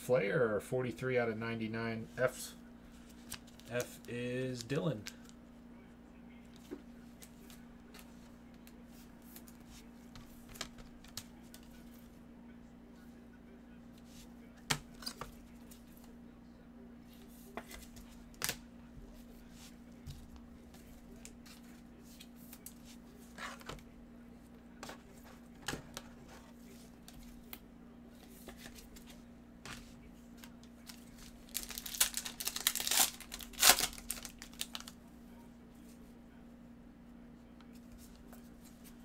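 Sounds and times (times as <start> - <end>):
steady low hum: 0.0 - 39.0
plastic wrapper crinkling: 30.8 - 35.0.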